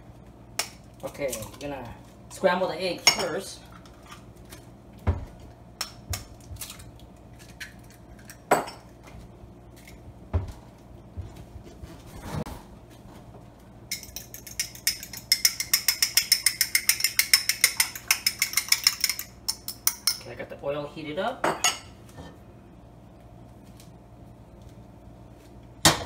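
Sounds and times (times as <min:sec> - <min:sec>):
eggs cracking on glass bowl: 0:13.9 - 0:20.2
fork beating eggs in glass: 0:13.9 - 0:20.2.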